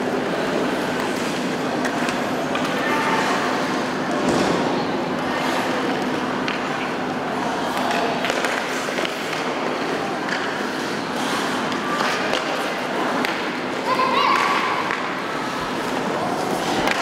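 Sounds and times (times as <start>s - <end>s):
sticks clicking on puck: 6.0s - 6.7s, 7.7s - 13.5s, 14.3s - 15.1s, 15.8s - 17.0s
skate blades scraping ice: 7.4s - 17.0s.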